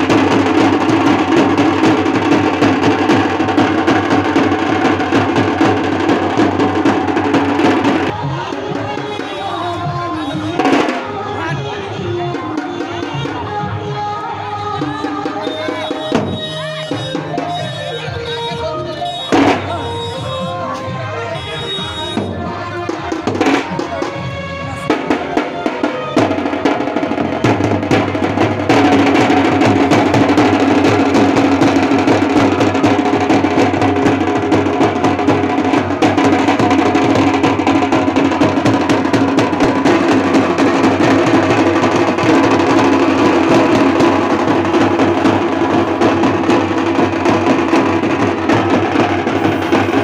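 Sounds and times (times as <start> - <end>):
barrel drum rolls: 0.0 - 8.8, 22.0 - 50.0.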